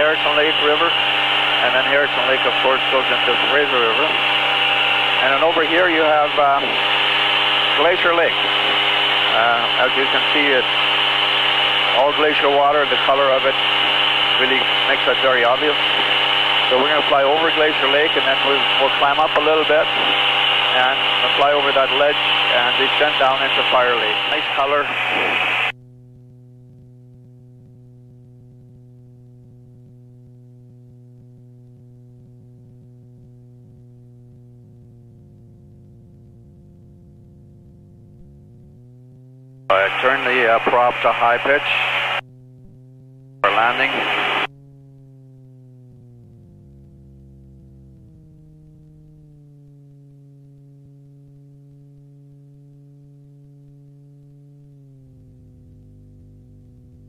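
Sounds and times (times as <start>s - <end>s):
aircraft engine and propeller droning: 0.0s - 57.0s
low electrical intercom hum: 0.0s - 57.0s.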